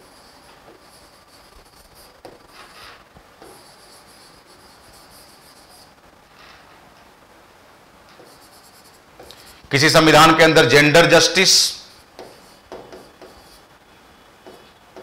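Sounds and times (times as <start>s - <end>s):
chalk scratching on blackboard: 0.0s - 6.0s, 8.2s - 9.6s, 11.9s - 13.7s.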